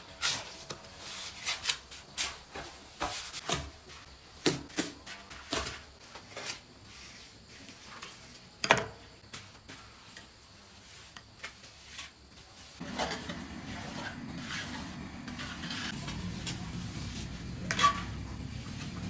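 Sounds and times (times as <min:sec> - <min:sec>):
trowel scraping wet mortar: 0:10.7 - 0:18.2.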